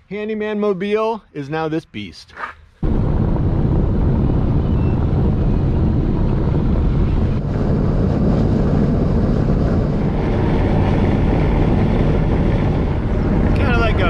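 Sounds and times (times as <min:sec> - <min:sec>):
engine tyre and wind rumble: 0:02.8 - 0:14.0.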